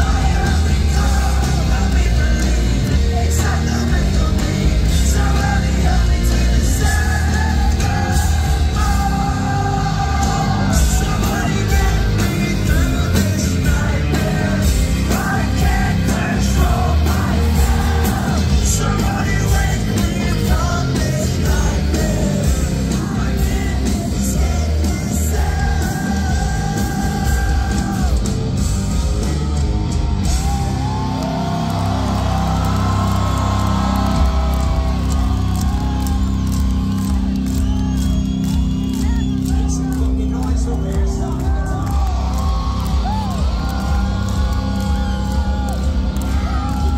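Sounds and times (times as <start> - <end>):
man singing and shouting: 0.0 - 28.3
hard rock band playing live: 0.0 - 46.9.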